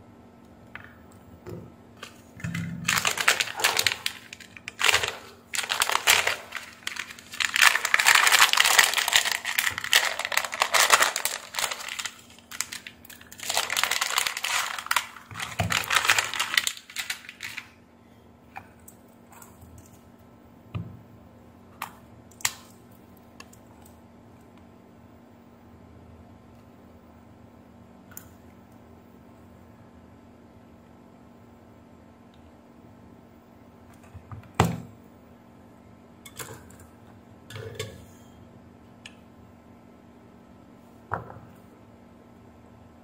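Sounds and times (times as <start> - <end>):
plastic bag crinkling: 2.0 - 17.8.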